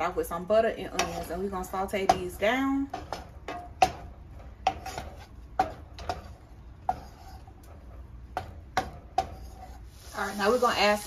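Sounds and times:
wooden spoon knocking on a pan: 0:01.9 - 0:07.1, 0:08.3 - 0:09.5.

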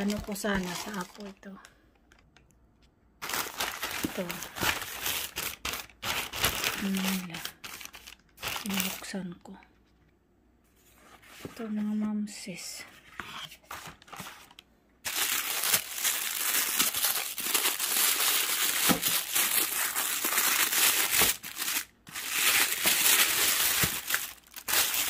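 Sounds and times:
tissue paper crinkling: 0:00.0 - 0:01.5, 0:03.2 - 0:09.1, 0:13.7 - 0:25.0.

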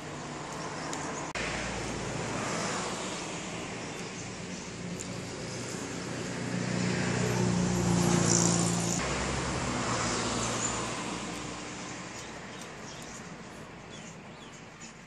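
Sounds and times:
vehicle passing by: 0:00.0 - 0:14.1.

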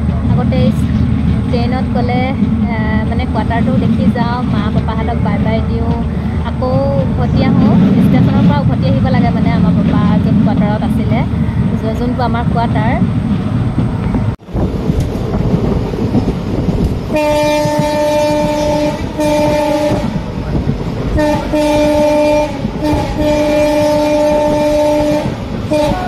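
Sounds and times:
train rumbling: 0:00.0 - 0:26.0
multi-tone train horn: 0:17.1 - 0:20.2, 0:21.1 - 0:26.0.

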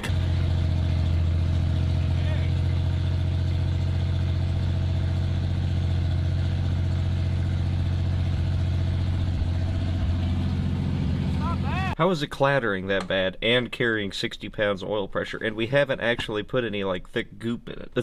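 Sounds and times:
car engine idling: 0:00.0 - 0:12.0.

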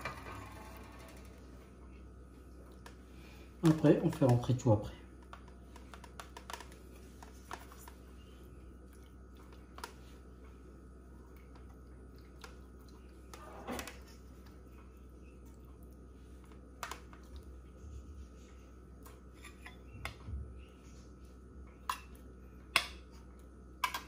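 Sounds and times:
steady low hum: 0:00.0 - 0:24.0
clicks and taps of handling food: 0:05.2 - 0:08.0, 0:16.4 - 0:17.5.

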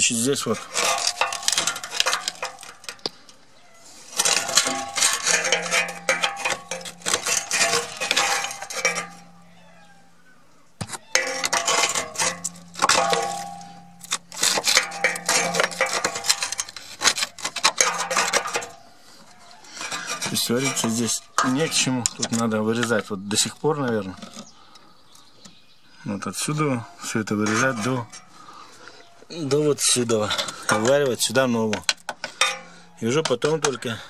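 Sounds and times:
screwdriver scraping sheet metal: 0:00.0 - 0:03.1, 0:04.0 - 0:09.4, 0:10.8 - 0:18.8, 0:19.4 - 0:23.0, 0:27.4 - 0:28.3.

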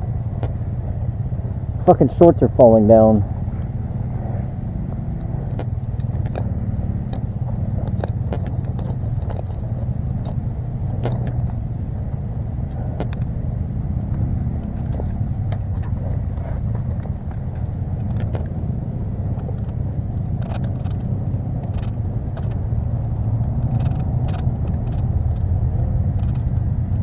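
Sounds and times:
engine rumbling: 0:00.0 - 0:27.0
light clicks and crackles: 0:05.2 - 0:11.6, 0:12.6 - 0:13.3, 0:14.1 - 0:18.6, 0:19.2 - 0:22.8, 0:23.5 - 0:26.9.

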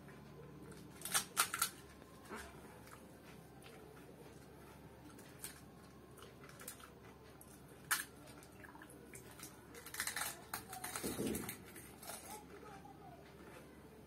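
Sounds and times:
crunching and mouth noises: 0:00.6 - 0:12.7
wet eating sounds: 0:02.2 - 0:12.3.

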